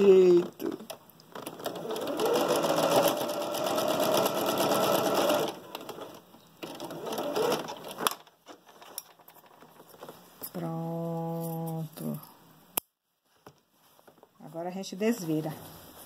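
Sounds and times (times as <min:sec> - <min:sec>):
sewing machine stitching: 0:01.4 - 0:08.1.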